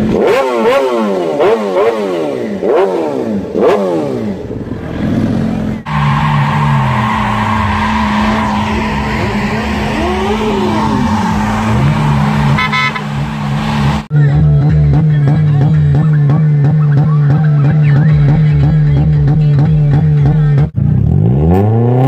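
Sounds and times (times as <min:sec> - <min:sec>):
motorcycle engine revving: 0:00.0 - 0:22.0
tyres squealing: 0:05.9 - 0:14.1
car engine at steady revs: 0:07.0 - 0:22.0.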